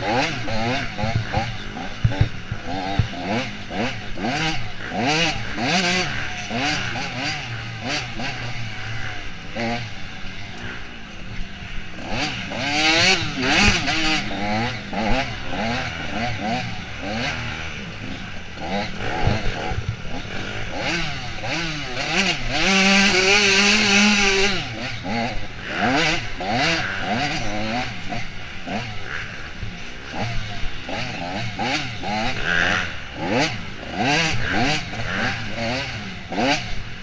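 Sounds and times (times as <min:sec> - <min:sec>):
dirt bike engine revving: 0:00.0 - 0:37.0.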